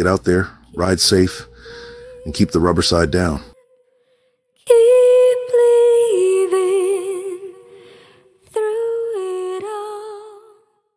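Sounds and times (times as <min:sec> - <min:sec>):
wordless voice with vibrato: 0:00.0 - 0:03.6.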